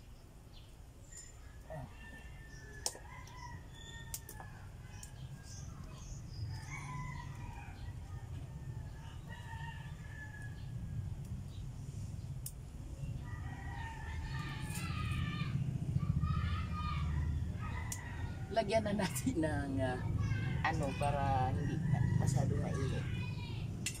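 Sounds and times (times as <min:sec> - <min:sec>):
rooster crowing: 0:01.4 - 0:05.5, 0:06.5 - 0:11.0, 0:13.2 - 0:15.6, 0:16.2 - 0:18.8, 0:20.2 - 0:23.3.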